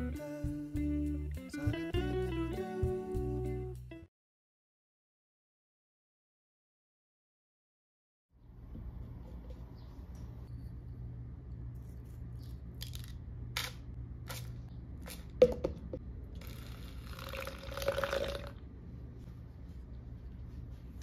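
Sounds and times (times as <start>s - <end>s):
liquid pouring into cup: 16.4s - 18.6s.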